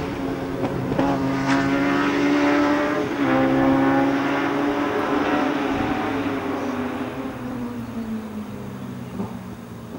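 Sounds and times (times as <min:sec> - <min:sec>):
race car engine high revs: 0:00.1 - 0:07.0.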